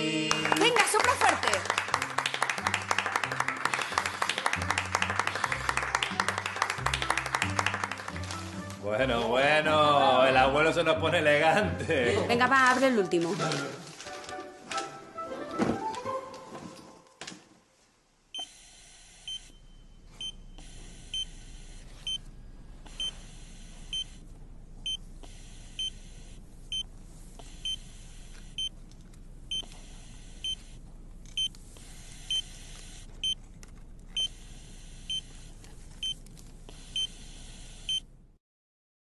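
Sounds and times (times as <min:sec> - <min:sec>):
low background hum: 0:17.8 - 0:38.4
heart monitor beeping: 0:18.4 - 0:24.2, 0:24.8 - 0:28.8, 0:29.5 - 0:30.8, 0:31.4 - 0:33.4, 0:34.1 - 0:38.1.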